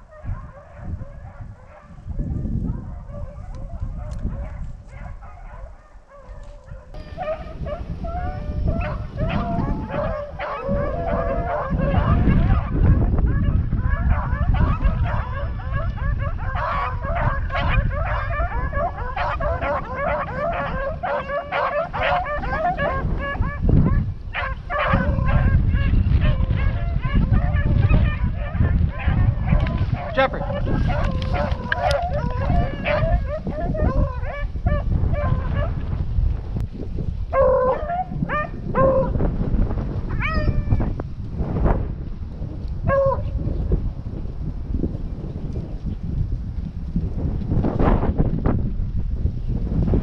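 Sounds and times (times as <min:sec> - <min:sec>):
dogs baying and yipping: 0:00.0 - 0:35.8, 0:37.3 - 0:39.1, 0:40.1 - 0:40.8, 0:42.9 - 0:43.4.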